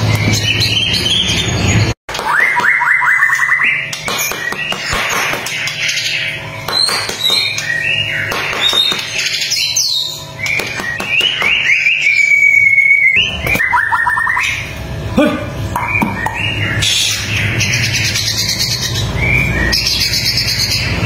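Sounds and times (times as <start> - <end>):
bird singing whistled phrases: 9.6 - 14.6.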